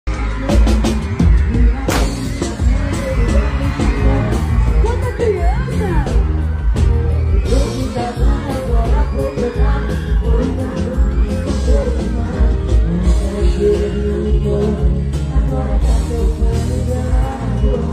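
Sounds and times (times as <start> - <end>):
crowd yelling and cheering: 0.0 - 17.9
live band music with singing: 0.1 - 17.9.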